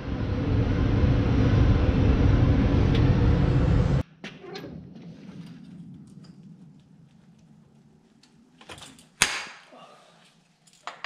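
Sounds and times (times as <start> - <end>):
tractor engine drone: 0.0 - 4.0.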